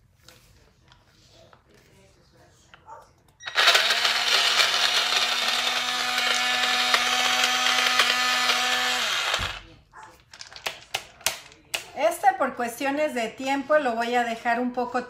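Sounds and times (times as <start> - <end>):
blender motor whining: 3.4 - 9.7.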